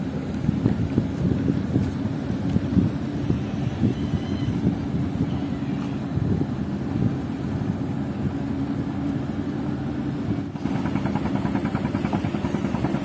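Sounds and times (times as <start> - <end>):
engine running: 4.6 - 13.0.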